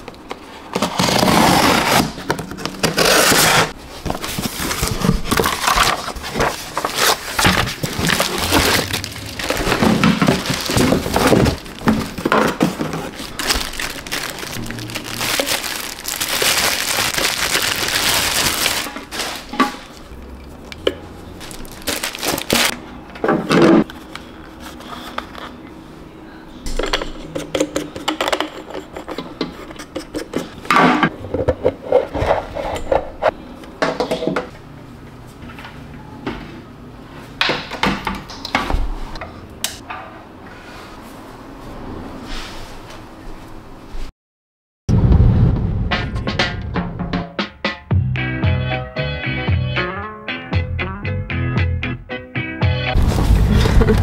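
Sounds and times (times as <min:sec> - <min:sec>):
plastic packaging crinkling: 0:04.2 - 0:20.1, 0:21.4 - 0:22.7.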